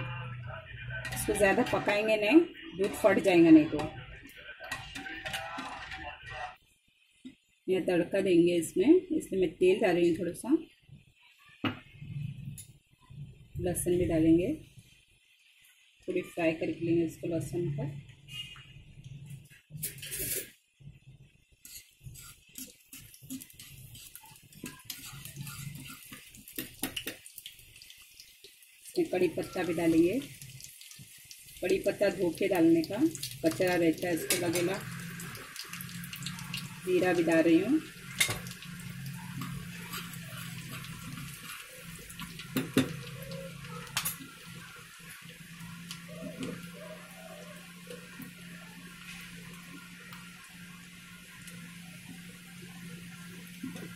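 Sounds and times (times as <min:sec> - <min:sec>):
spoon stirring in pan: 0:01.0 - 0:06.1, 0:21.6 - 0:52.4
garlic sizzling in hot oil: 0:01.1 - 0:05.6, 0:19.4 - 0:20.6, 0:21.5 - 0:53.9.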